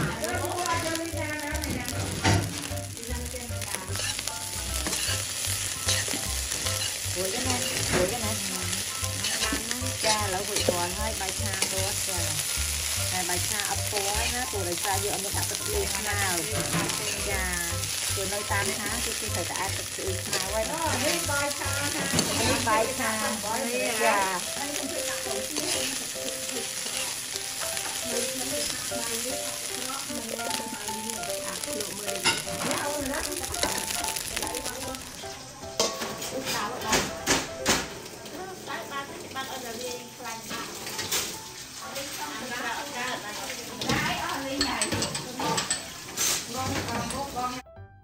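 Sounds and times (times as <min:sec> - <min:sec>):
spatulas stirring in a wok: 0:00.0 - 0:37.1, 0:38.2 - 0:47.6
fried rice sizzling in a pan: 0:00.0 - 0:47.6
wooden spatula scraping a pan: 0:03.9 - 0:11.8.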